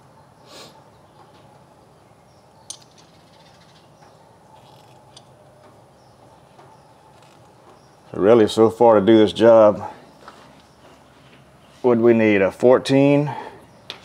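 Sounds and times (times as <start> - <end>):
clamp creaking and squeaking: 4.6 - 5.3, 7.1 - 7.6.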